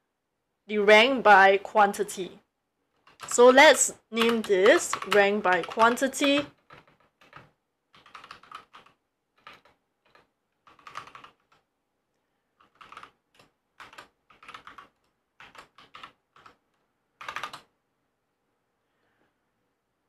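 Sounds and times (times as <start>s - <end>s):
keyboard typing: 2.9s - 11.7s, 12.6s - 17.7s.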